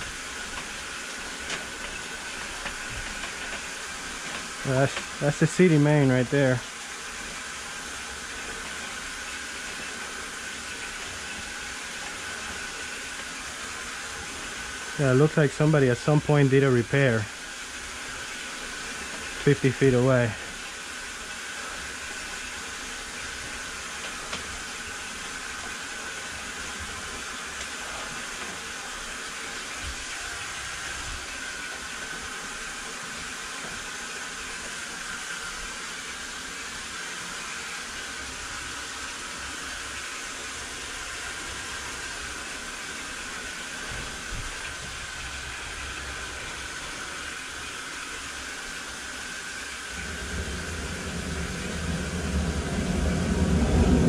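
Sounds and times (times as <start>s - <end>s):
high-pressure water hissing: 0.0s - 54.0s
low rumble: 49.9s - 54.0s.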